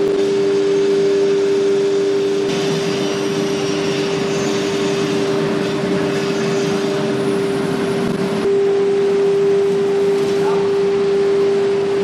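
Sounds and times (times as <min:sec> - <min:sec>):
router spindle whine: 0:00.0 - 0:12.0.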